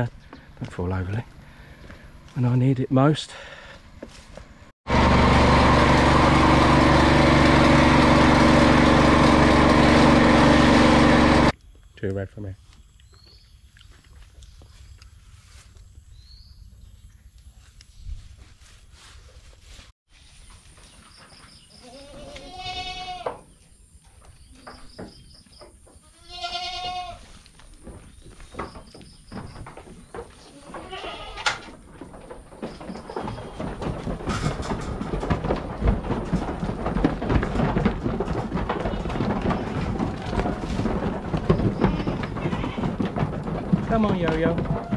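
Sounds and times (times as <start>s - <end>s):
small engine running steadily: 4.9s - 11.5s
goat bleating: 21.8s - 23.4s, 26.0s - 27.3s, 30.5s - 31.7s, 41.4s - 43.0s.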